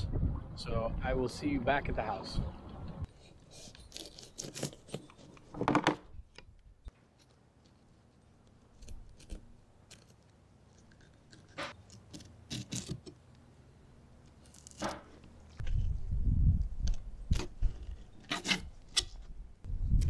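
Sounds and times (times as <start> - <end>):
knife scraping on plastic table: 17.4 - 18.8.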